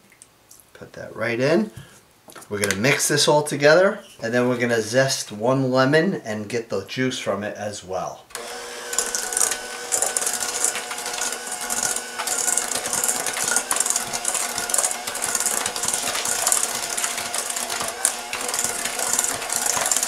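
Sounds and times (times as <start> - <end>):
electric hand mixer whirring: 8.3 - 20.0.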